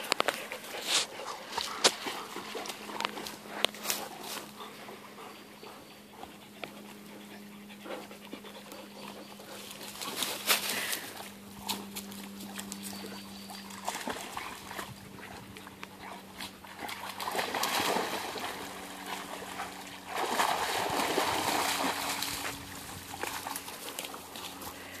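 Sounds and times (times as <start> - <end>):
faint low hum: 0.0 - 25.0
dogs splashing in water: 12.2 - 25.0.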